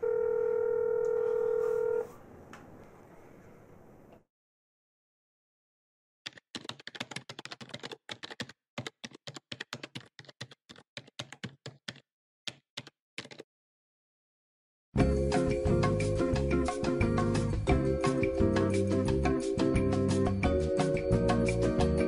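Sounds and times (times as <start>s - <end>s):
computer keyboard typing: 6.3s - 13.4s.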